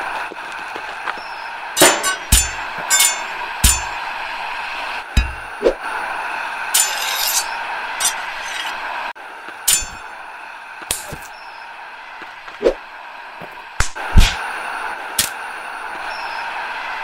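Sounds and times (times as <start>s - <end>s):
background ambience: 0.0s - 17.0s
blades clanging: 1.8s - 4.4s, 5.0s - 5.7s, 6.7s - 8.9s, 9.6s - 10.2s.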